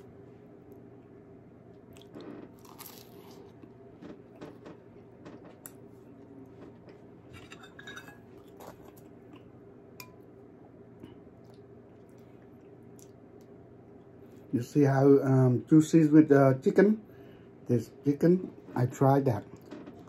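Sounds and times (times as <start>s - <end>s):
crunchy chewing: 1.9s - 7.1s
metal spoon clinking on bowl: 7.4s - 8.2s.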